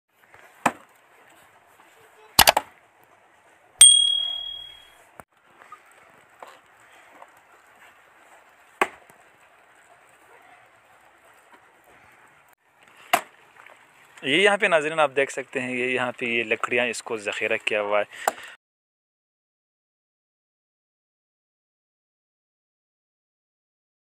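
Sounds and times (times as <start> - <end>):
axe chopping firewood: 0.6 - 0.9, 2.4 - 2.7, 8.8 - 9.0, 13.0 - 13.4
axe strike with metallic ring: 3.8 - 4.9.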